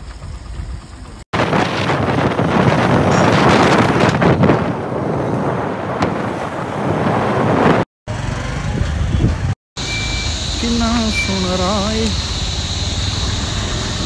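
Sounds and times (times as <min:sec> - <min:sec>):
wind buffeting microphone: 0:00.0 - 0:07.9, 0:08.6 - 0:09.6.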